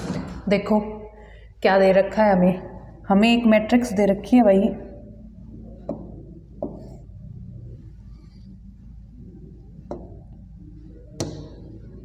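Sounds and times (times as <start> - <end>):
low room hum: 0.0 - 12.0
writing on a board: 5.8 - 7.2.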